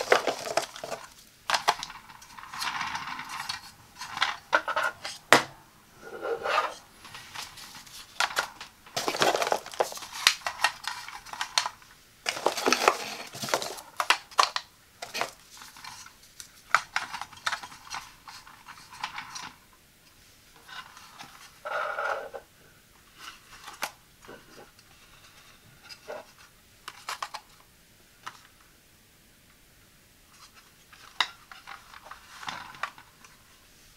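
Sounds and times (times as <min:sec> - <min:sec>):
plastic carousel rattling: 0:00.0 - 0:05.0
plastic clicking and clattering: 0:00.0 - 0:05.5, 0:07.0 - 0:19.6, 0:26.0 - 0:27.6.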